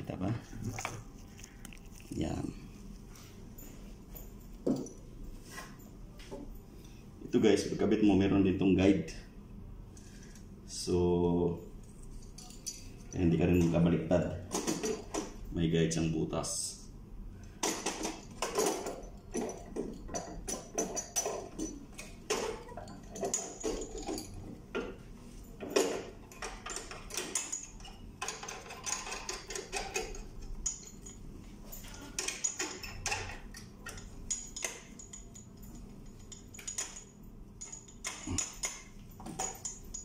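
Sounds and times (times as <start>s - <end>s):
small clicks taps and rattles: 25.6s - 31.2s, 31.8s - 40.0s.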